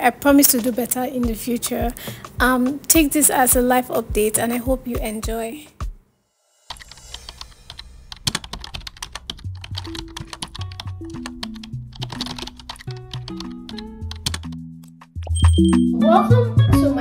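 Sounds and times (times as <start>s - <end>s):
background music with held notes: 0.0s - 6.0s, 6.7s - 17.0s
keyboard typing clicks: 8.3s - 15.8s.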